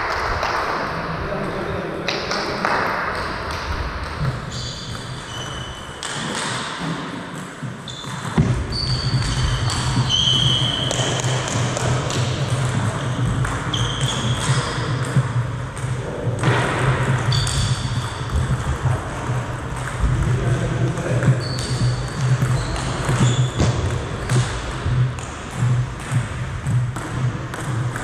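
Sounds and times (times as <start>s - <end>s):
table tennis ball bouncing: 2.1s - 28.0s
shoes squeaking on wooden floor: 4.4s - 6.0s, 7.8s - 11.6s, 12.9s - 15.0s, 17.2s - 18.6s, 21.0s - 26.0s
steady low hum: 10.8s - 28.0s.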